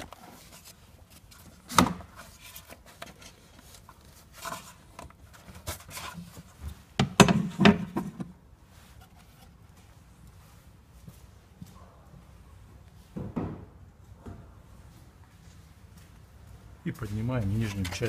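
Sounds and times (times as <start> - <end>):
knocks and scraping: 0.0 - 9.9, 17.1 - 18.0.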